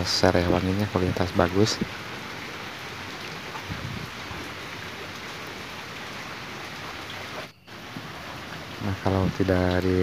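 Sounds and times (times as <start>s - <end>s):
steady rain: 0.0s - 10.0s.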